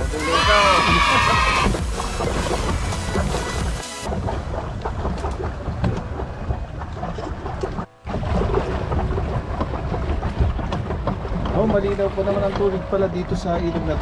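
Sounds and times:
water noise from paddling: 0:00.0 - 0:14.0.

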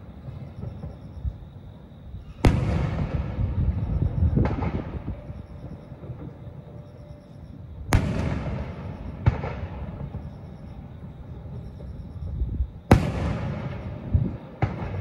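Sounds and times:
firework shells booming: 0:02.3 - 0:06.4, 0:07.9 - 0:10.2, 0:12.9 - 0:15.0.

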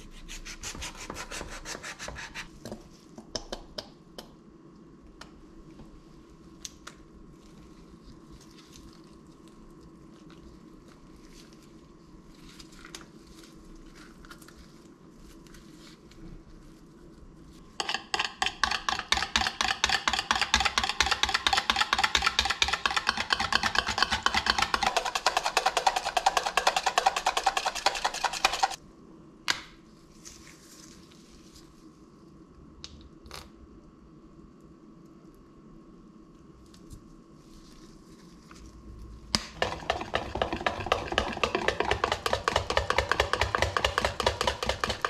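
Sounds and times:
whisk clicking against bowl: 0:17.8 - 0:28.8, 0:39.4 - 0:45.0.

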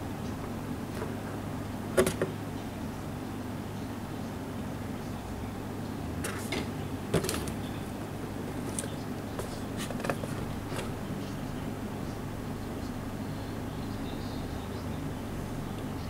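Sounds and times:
steady low background hum: 0:00.0 - 0:16.0
cardboard box being handled: 0:08.6 - 0:10.9.

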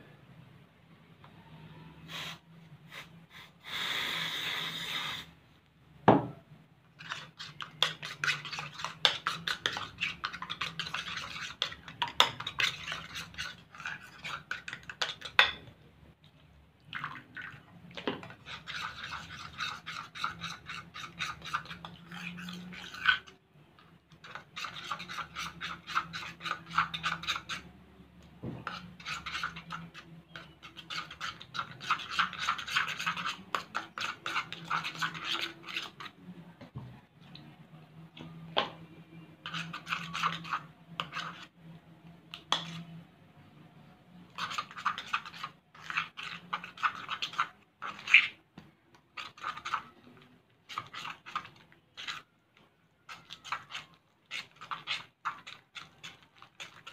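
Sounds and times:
spoon scraping ceramic bowl: 0:07.0 - 0:15.7, 0:18.0 - 0:27.7, 0:28.6 - 0:36.2, 0:39.4 - 0:41.6, 0:42.3 - 0:43.0, 0:44.3 - 0:48.4, 0:49.1 - 0:52.3, 0:53.0 - 0:56.9.

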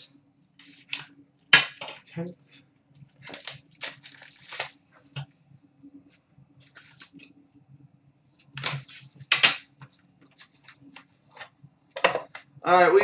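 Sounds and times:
low steady hum: 0:00.0 - 0:13.0
cards rustling and scraping: 0:00.6 - 0:01.1, 0:06.6 - 0:07.3, 0:08.4 - 0:11.6.

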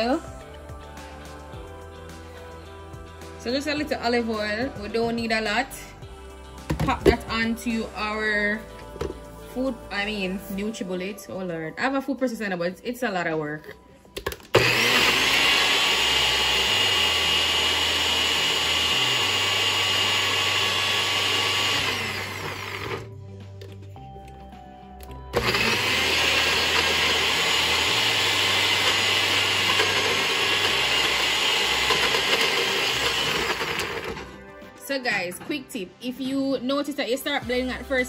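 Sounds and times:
blender motor chopping food: 0:14.5 - 0:23.1, 0:25.3 - 0:34.4.

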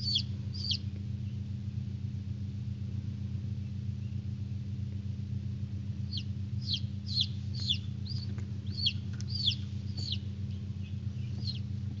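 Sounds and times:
chicks peeping: 0:00.0 - 0:01.4, 0:06.1 - 0:12.0
steady low hum: 0:00.0 - 0:12.0.

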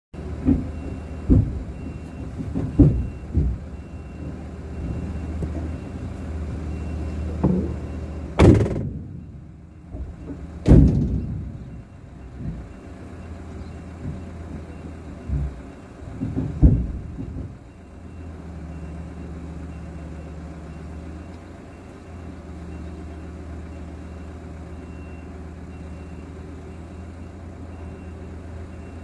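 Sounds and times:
low engine hum: 0:00.2 - 0:29.0
knocks and thumps: 0:00.4 - 0:05.8, 0:07.3 - 0:09.3, 0:09.9 - 0:12.8, 0:13.9 - 0:17.6
car door slams: 0:08.4 - 0:09.0, 0:10.6 - 0:11.3.

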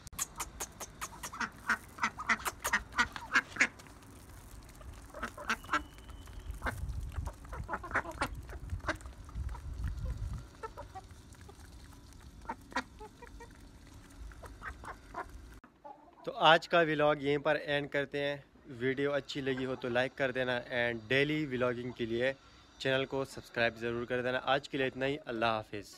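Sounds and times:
beaks pecking grain on concrete: 0:00.2 - 0:16.2
ducks quacking: 0:00.3 - 0:03.8, 0:04.8 - 0:06.0, 0:06.6 - 0:11.7, 0:12.3 - 0:16.1, 0:19.4 - 0:20.0.

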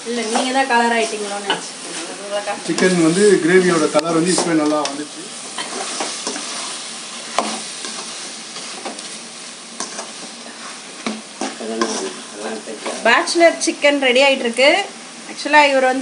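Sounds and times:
chicken frying in gravy: 0:00.0 - 0:15.4
ladle stirring and scraping: 0:00.1 - 0:13.1.

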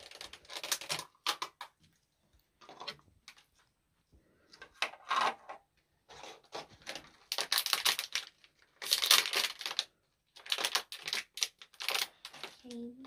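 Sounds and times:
plastic capsules rustling and clicking: 0:00.0 - 0:01.8, 0:04.5 - 0:13.0.

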